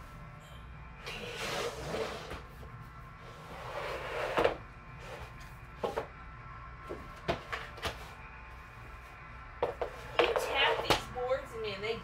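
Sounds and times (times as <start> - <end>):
boards scraping on floor: 1.0 - 2.6, 3.2 - 6.0.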